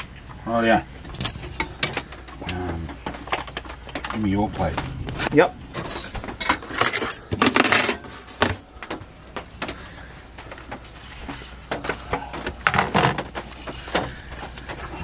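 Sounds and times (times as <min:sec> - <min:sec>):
dishes clattering: 0:05.8 - 0:08.6.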